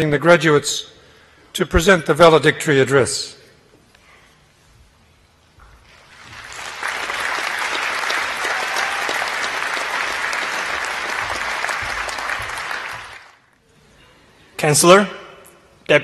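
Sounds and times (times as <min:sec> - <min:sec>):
audience applauding: 0:06.0 - 0:13.4.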